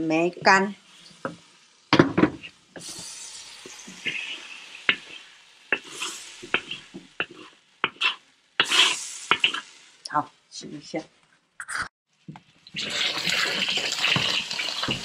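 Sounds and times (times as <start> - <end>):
hot oil sizzling: 0.0 - 11.0, 12.1 - 15.0
wooden spatula scraping wok: 2.2 - 9.9, 12.8 - 15.0.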